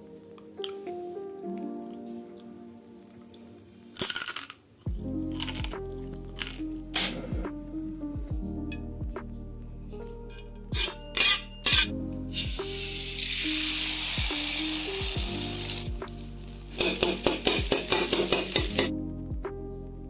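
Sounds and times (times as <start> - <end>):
background music: 0.0 - 20.0
egg sizzling in hot oil: 12.4 - 18.9.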